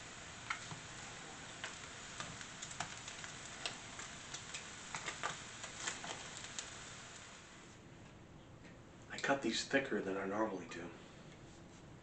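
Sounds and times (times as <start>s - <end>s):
meat sizzling in a skillet: 0.0s - 7.7s.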